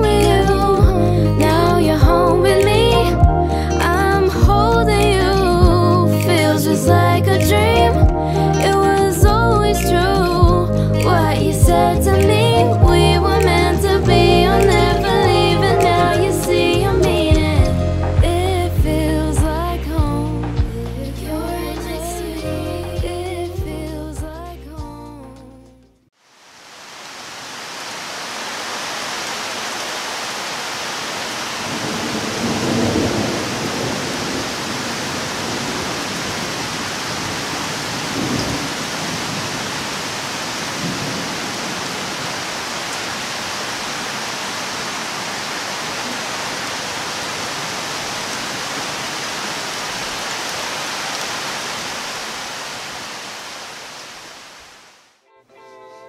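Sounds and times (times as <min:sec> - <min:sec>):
heavy rain: 0:00.0 - 0:19.4, 0:26.2 - 0:55.2
thunder rolling: 0:31.6 - 0:39.7.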